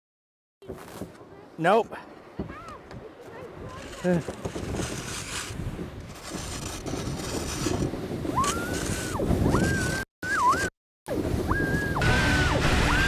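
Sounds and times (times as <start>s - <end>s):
kayak scraping on snow: 3.1s - 10.6s.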